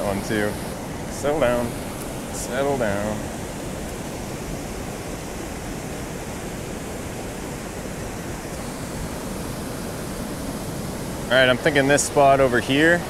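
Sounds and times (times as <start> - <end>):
waterfall roaring: 0.0 - 13.0.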